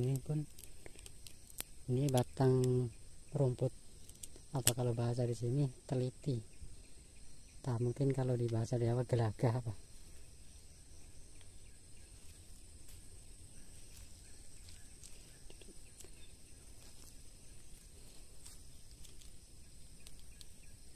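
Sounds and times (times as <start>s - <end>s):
soft clicks and rustles: 0.0s - 2.8s, 11.3s - 20.9s
insects chirring: 0.0s - 20.9s.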